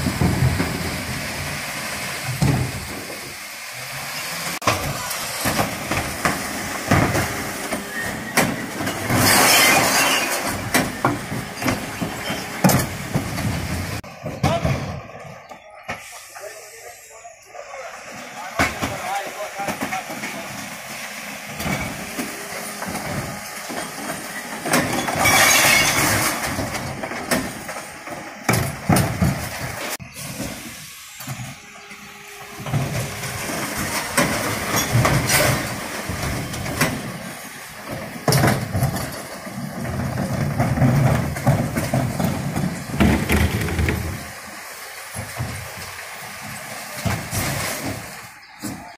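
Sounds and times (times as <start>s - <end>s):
bins crashing into hopper: 0.0s - 3.1s, 4.6s - 15.0s, 18.6s - 30.6s, 32.6s - 44.5s
truck engine running: 0.0s - 14.2s
bangs and clatters: 37.8s - 44.3s.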